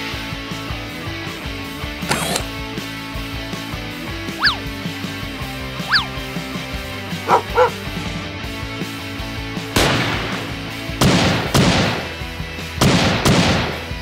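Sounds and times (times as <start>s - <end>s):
background music: 0.0s - 14.0s
short yelps: 4.4s - 4.6s, 5.8s - 6.2s, 7.3s - 7.8s.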